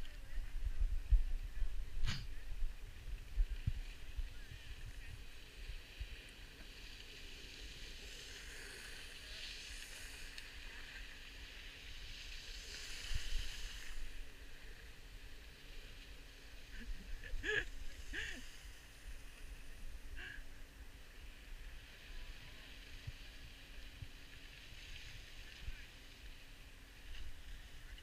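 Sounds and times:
skis scraping on snow: 2.1 - 20.0, 21.0 - 28.0.

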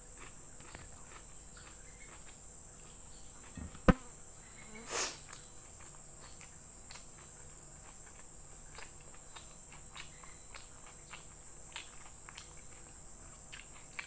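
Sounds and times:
person chewing with mouth closed: 0.0 - 3.9, 5.1 - 14.0
steady high hiss: 2.5 - 7.8
sharp knock: 3.6 - 4.1.

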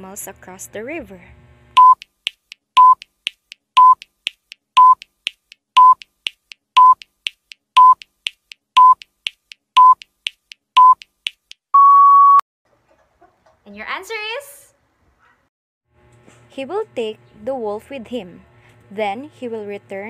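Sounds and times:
short timer beeps: 1.8 - 2.1, 2.8 - 3.0, 3.8 - 4.1, 4.8 - 5.1, 5.8 - 6.1, 6.8 - 7.1, 7.8 - 8.0, 8.8 - 9.0, 9.8 - 10.0, 10.8 - 11.0.

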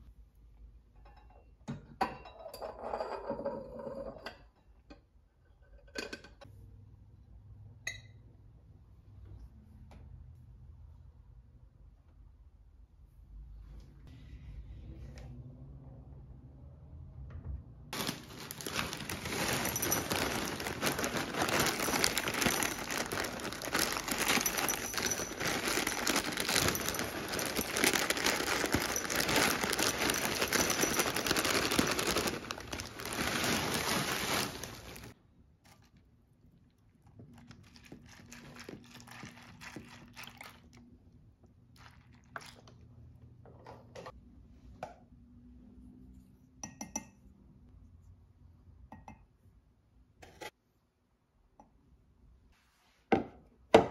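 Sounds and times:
cereal pouring into a bowl: 18.0 - 35.1
plastic bag crinkling: 18.0 - 35.2, 37.5 - 40.6.

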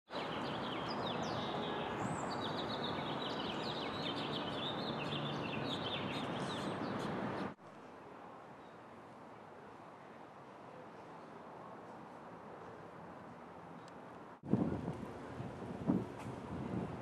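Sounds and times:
small birds chirping: 0.1 - 7.6.

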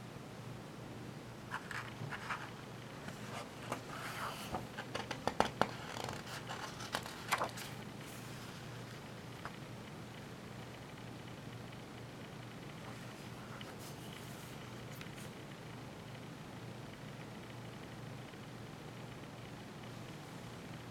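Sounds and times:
faint steady hum: 0.0 - 20.9
paper pages rustling: 1.5 - 9.6.

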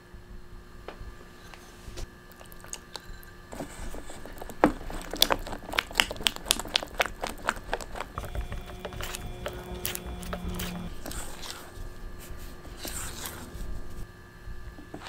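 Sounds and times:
spatula stirring thick batter: 2.8 - 11.7.

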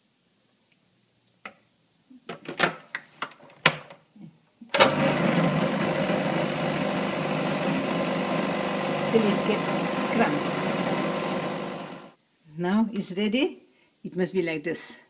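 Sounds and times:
food processor motor running: 4.8 - 12.2.

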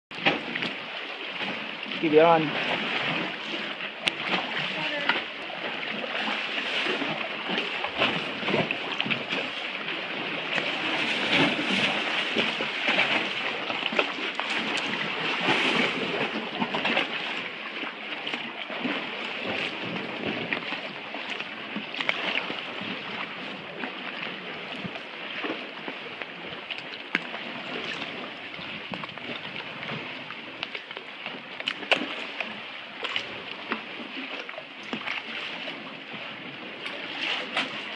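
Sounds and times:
paddle splashing water: 0.1 - 37.9
water sloshing around hull: 0.1 - 37.9.

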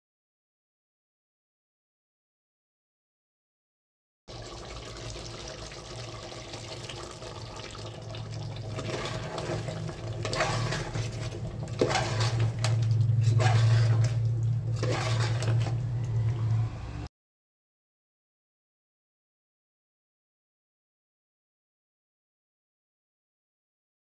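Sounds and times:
wet paste pouring and stirring: 4.4 - 16.5.

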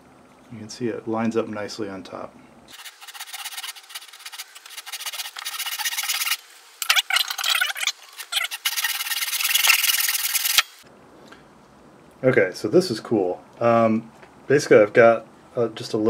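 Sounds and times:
backsaw cutting wood: 2.8 - 6.4.

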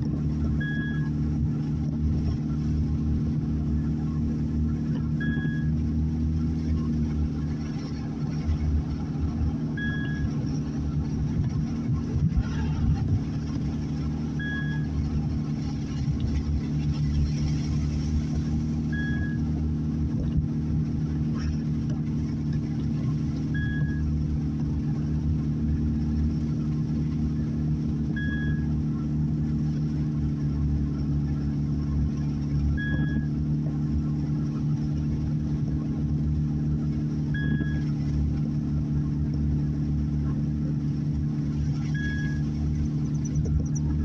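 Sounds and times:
car engine and tyre hum: 0.0 - 44.0
short high beep: 0.6 - 1.1, 5.2 - 5.8, 9.8 - 10.4, 14.4 - 15.0, 18.9 - 19.5, 23.6 - 24.1, 28.1 - 28.7, 32.7 - 33.3, 37.4 - 37.9, 41.8 - 42.5.

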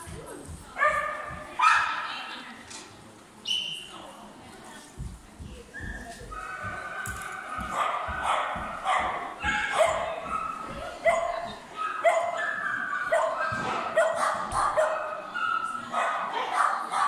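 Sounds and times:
dog barking and yipping: 6.4 - 17.0.

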